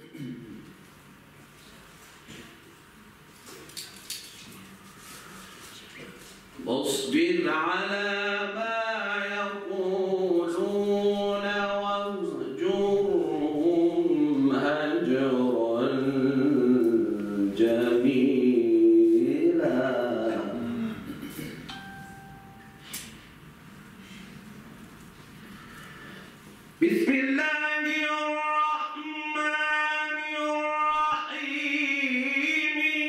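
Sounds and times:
man chanting recitation: 6.6 - 21.3, 26.8 - 33.0.

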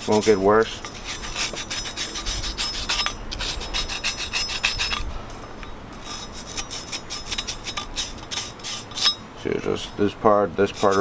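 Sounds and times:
wire brush scrubbing metal: 0.0 - 5.1, 6.0 - 9.2, 10.6 - 11.0.

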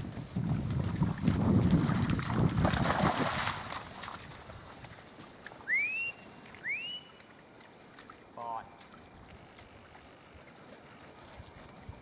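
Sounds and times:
rising whistles: 5.6 - 7.2.

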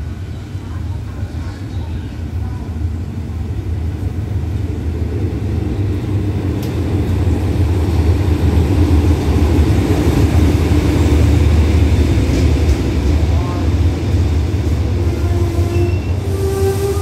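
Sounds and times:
diesel locomotive engine drone: 0.0 - 17.0.

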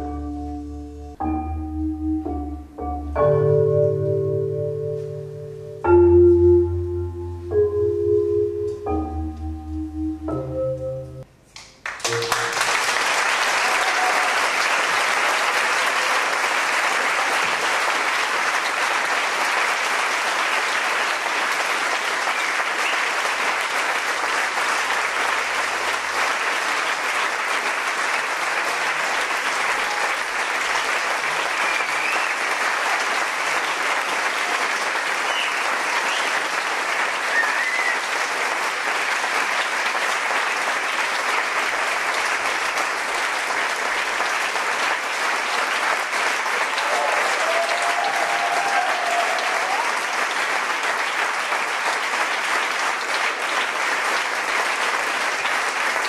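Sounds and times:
audience applauding: 11.6 - 56.0.

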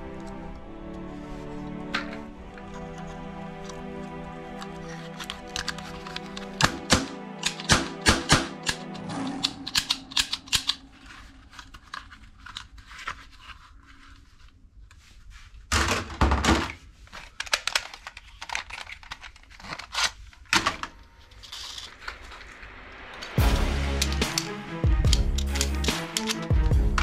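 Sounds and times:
plastic toy guns clicking: 4.6 - 8.9, 17.3 - 20.1, 24.0 - 26.6.

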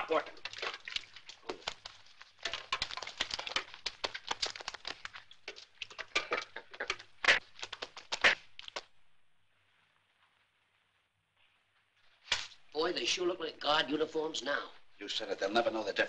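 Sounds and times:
paintbrushes slapping wet paint: 0.0 - 9.0
faint film hiss: 0.0 - 16.0.

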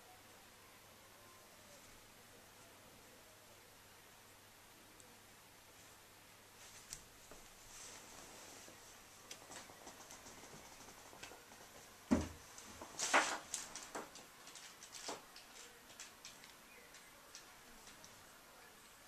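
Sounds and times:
animals scuffling on carpet: 6.6 - 11.8
thump: 12.1 - 12.4.

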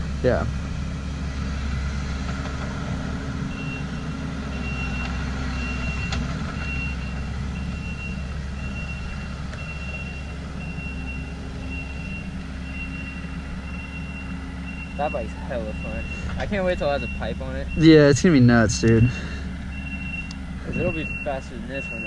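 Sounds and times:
high beep: 7.8 - 16.2, 16.8 - 18.0, 19.8 - 22.0.

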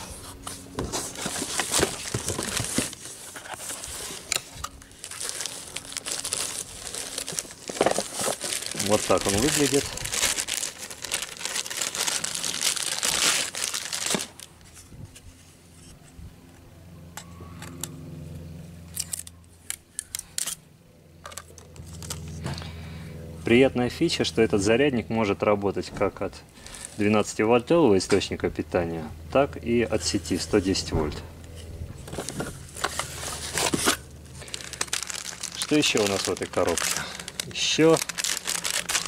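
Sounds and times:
tape peeling: 0.0 - 14.8, 32.0 - 39.0
plastic and cardboard packaging rustling: 0.0 - 15.5, 32.0 - 39.0.

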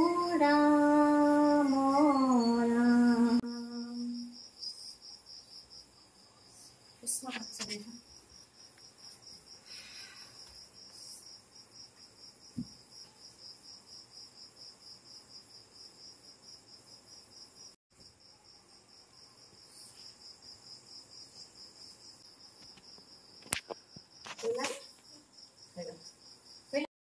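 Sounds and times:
cricket chirping: 0.0 - 26.9
thump: 12.5 - 12.8.

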